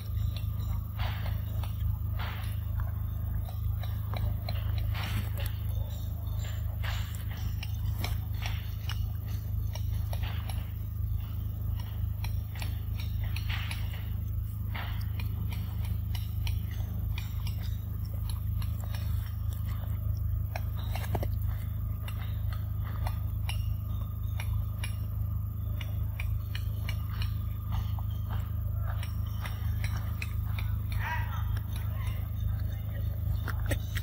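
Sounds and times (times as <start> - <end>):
monkey chewing wet smacks: 0.0 - 34.0
steady low hum: 0.0 - 34.0.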